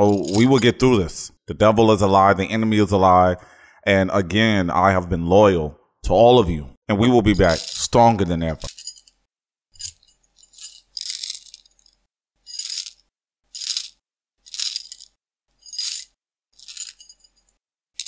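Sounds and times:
high metallic jingling: 0.0 - 0.5, 7.4 - 7.9, 8.5 - 9.2, 9.8 - 13.0, 13.6 - 17.6.

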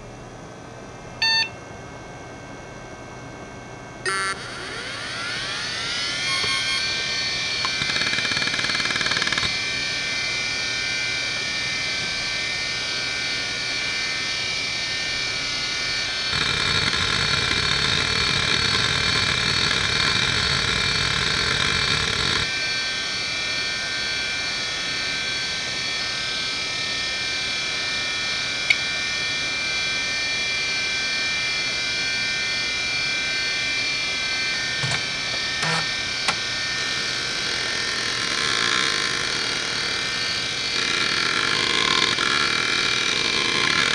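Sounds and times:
hard drive whine: 0.0 - 43.9
hard drive clicks: 34.8 - 36.4
hard drive heads seeking: 34.8 - 36.4.

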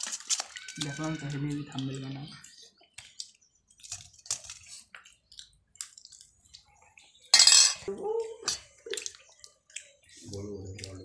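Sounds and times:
cutlery clinking on plates: 7.3 - 8.7.

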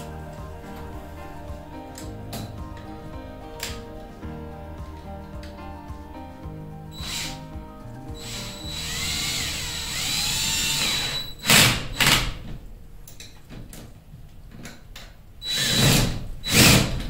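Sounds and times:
cordless drill motor whine: 8.2 - 11.3.

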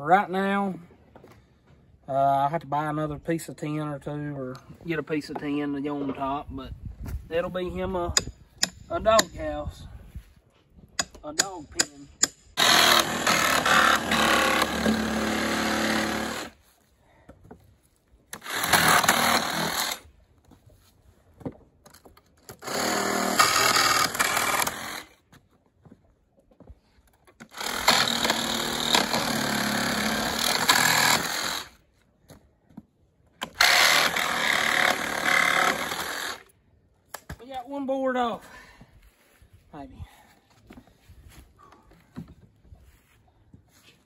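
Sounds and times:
reciprocating saw cutting wood: 12.2 - 16.6, 18.3 - 20.1, 22.5 - 25.2, 27.4 - 31.8, 33.4 - 36.5.

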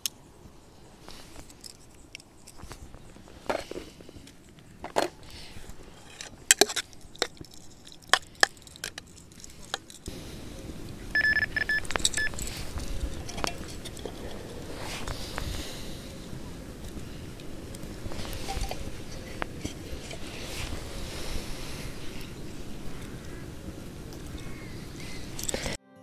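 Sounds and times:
wind noise: 0.0 - 25.8
bite alarm bleeps: 11.1 - 12.4.

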